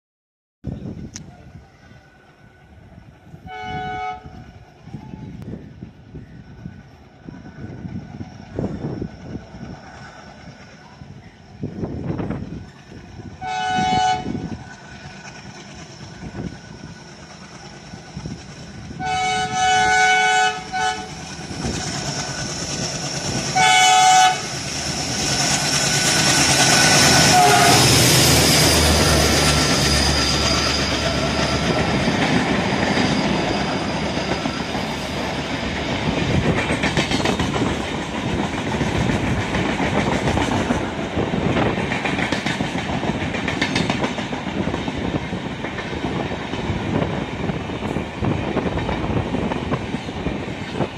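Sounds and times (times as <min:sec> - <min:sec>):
locomotive horn blasts: 0:03.4 - 0:04.4, 0:13.4 - 0:14.4, 0:19.0 - 0:21.1, 0:23.6 - 0:24.5, 0:27.2 - 0:28.0
clickety-clack of train wheels: 0:06.6 - 0:50.9.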